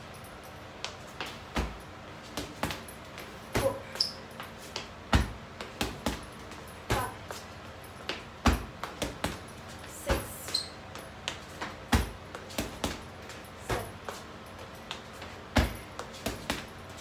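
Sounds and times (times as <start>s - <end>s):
deep thuds on heavy bag: 5.1s - 6.3s, 15.6s - 15.8s.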